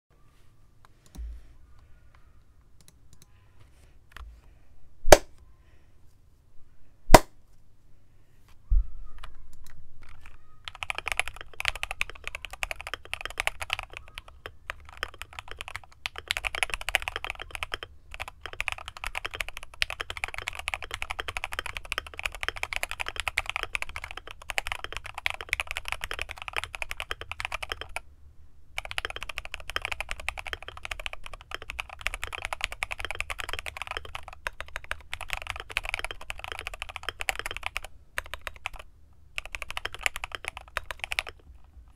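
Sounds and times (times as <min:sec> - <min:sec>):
mechanical keyboard clicks: 0:09.6 - 0:28.0, 0:28.8 - 0:38.8, 0:39.4 - 0:41.4
fast typing on mechanical keyboard: 0:10.0 - 0:28.0, 0:28.8 - 0:41.9.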